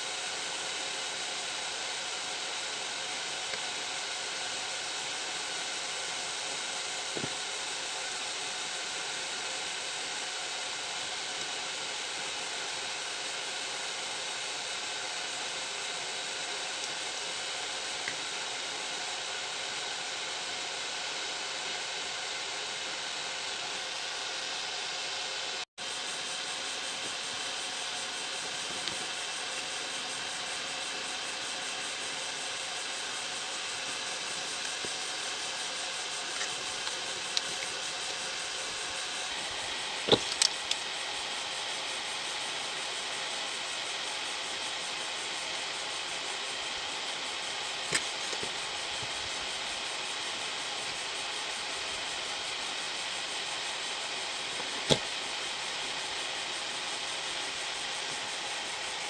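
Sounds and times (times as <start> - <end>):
steady hiss: 0.0 - 59.0
screwdriver being handled: 40.0 - 40.8.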